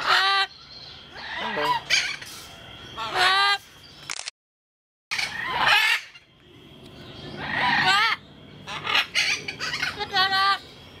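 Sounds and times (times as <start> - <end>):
parrot squawking: 0.0 - 0.5, 1.2 - 2.3, 3.0 - 3.6, 5.1 - 6.3, 7.4 - 10.6.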